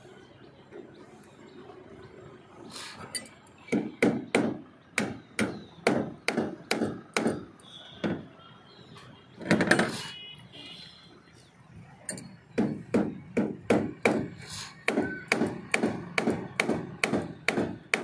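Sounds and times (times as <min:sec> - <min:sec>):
hammer knocking on formwork: 0:03.7 - 0:07.4, 0:12.6 - 0:18.0.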